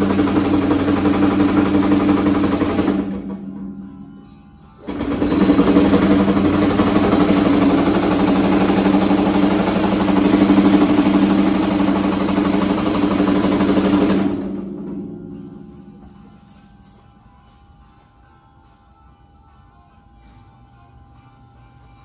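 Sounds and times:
power hammer pounding sheet metal: 0.0 - 3.8, 4.8 - 16.4.

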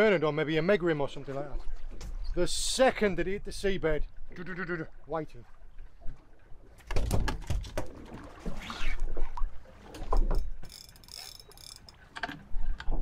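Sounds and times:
fishing reel clicking: 10.6 - 12.0
thin high reel buzz: 10.6 - 12.0.

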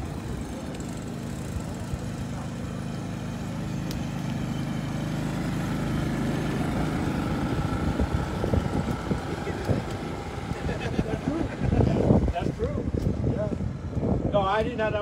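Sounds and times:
vehicle engine idling: 0.0 - 15.0.

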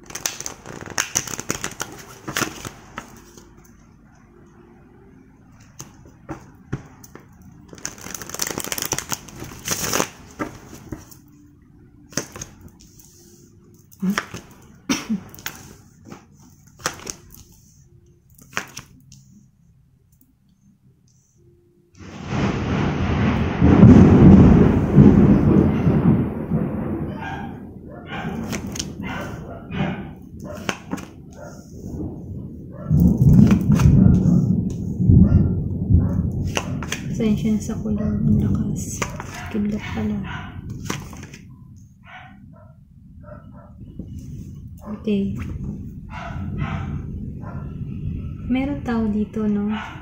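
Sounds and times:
cards being shuffled: 0.0 - 3.8, 5.6 - 11.2, 12.1 - 19.3, 28.3 - 29.0, 30.5 - 31.5, 33.3 - 34.8, 36.4 - 37.2, 38.8 - 39.8, 40.7 - 41.4
thunder: 22.0 - 30.5, 31.1 - 39.3, 43.8 - 49.4
cards clicking on table: 30.6 - 31.1, 36.5 - 37.1.

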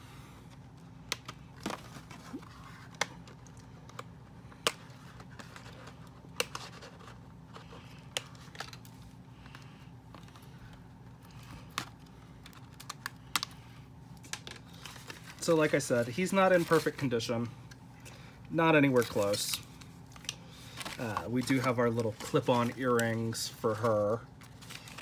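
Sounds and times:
cardboard rustling: 1.4 - 3.5, 4.8 - 9.0, 14.4 - 17.1, 20.6 - 25.0.

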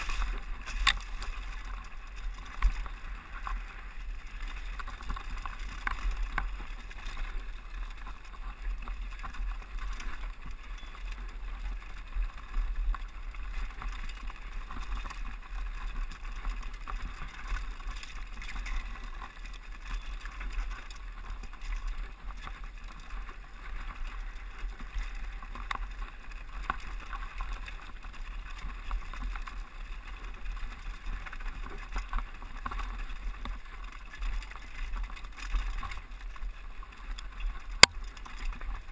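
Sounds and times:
bike clicks and knocks: 0.0 - 38.9
tyres crunching over gravel: 0.0 - 38.9
wind rumble on microphone: 0.0 - 38.9.

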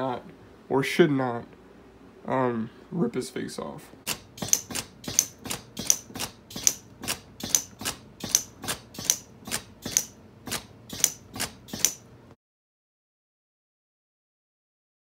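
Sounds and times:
pneumatic cylinder clicking and puffing: 4.1 - 12.1.

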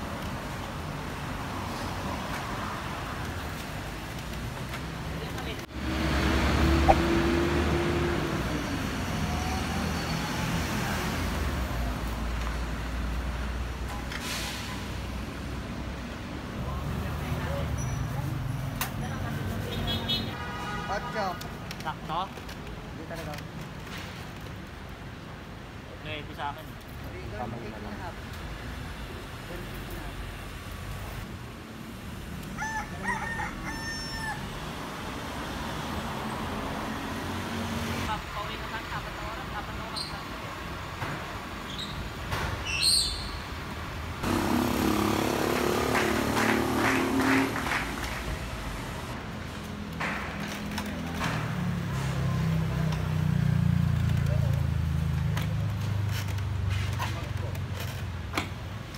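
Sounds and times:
street traffic noise: 0.0 - 58.9
vehicle engine drone: 44.2 - 49.2.

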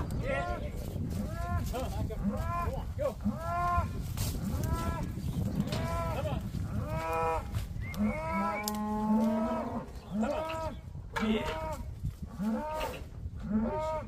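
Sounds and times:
cattle bawling: 1.2 - 11.8.

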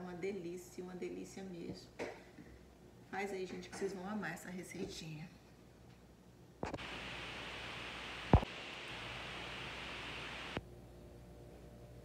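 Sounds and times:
steady hiss: 6.6 - 10.6.

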